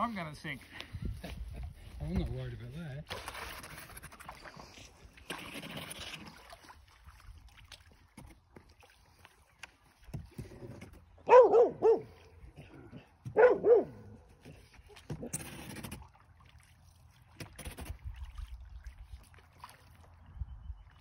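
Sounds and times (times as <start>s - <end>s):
wind on microphone: 0.9s - 2.4s
dog barking: 11.3s - 12.2s, 13.3s - 14.2s.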